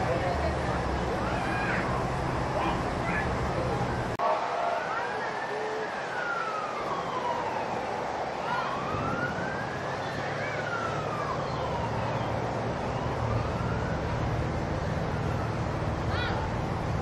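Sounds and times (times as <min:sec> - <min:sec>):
siren wailing: 0:04.2 - 0:16.6.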